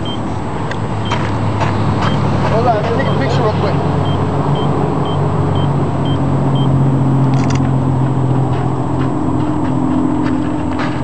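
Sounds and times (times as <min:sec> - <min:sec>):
low engine hum: 0:00.0 - 0:11.0
short high beeps: 0:04.0 - 0:06.7
sharp clicks: 0:07.3 - 0:07.7.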